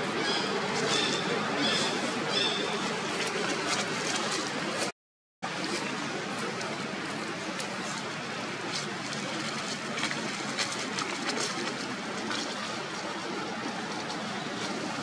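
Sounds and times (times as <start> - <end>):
rushing outdoor background noise: 0.0 - 15.0.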